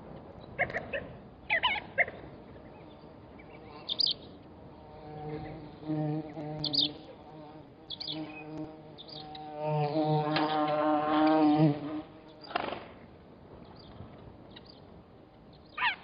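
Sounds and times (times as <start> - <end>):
birds chirping: 0.4 - 9.7, 13.6 - 16.0
flying insect buzzing: 2.4 - 13.0.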